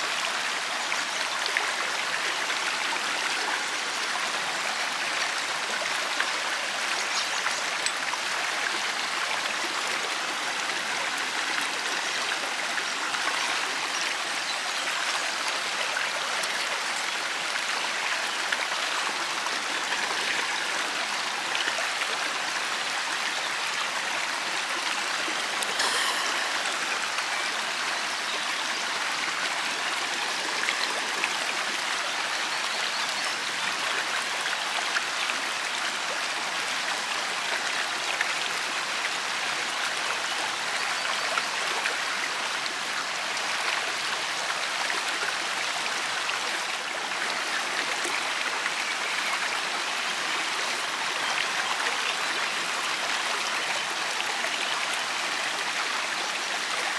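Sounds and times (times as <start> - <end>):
river babbling over rocks: 0.0 - 56.9.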